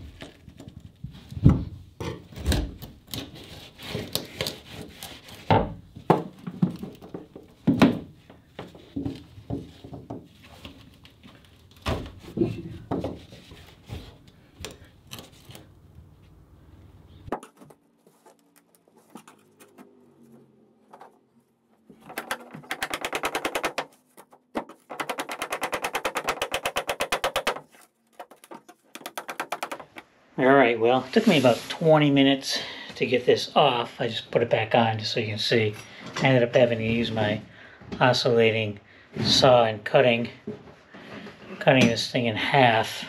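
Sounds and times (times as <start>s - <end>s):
chisel scraping board: 3.1s - 5.7s, 21.9s - 30.0s
sharp wooden knocks: 21.9s - 30.1s.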